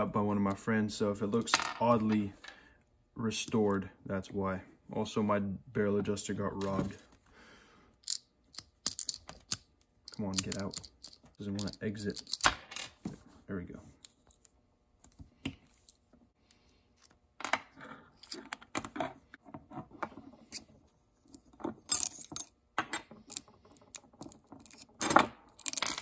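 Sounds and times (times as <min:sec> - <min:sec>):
small metal parts clicking: 0:08.0 - 0:12.5, 0:23.2 - 0:26.0.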